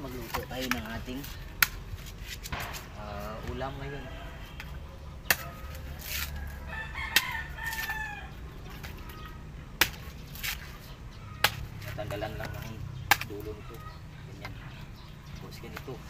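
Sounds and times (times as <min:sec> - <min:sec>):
machete chopping coconut husk: 0:00.0 - 0:03.6, 0:04.6 - 0:08.1, 0:09.8 - 0:13.6
rooster crowing: 0:03.1 - 0:08.6.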